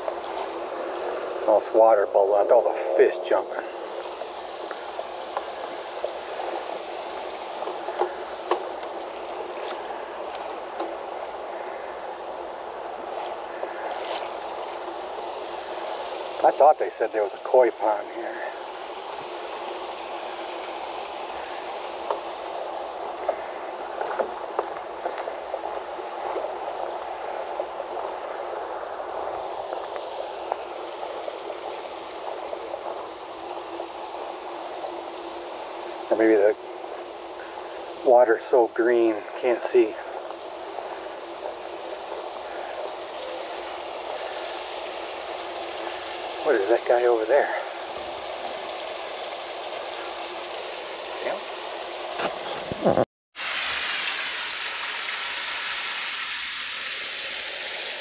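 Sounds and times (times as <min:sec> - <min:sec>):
water bubbling and trickling: 0:00.0 - 0:52.8
faint crackling ticks: 0:23.1 - 0:26.9.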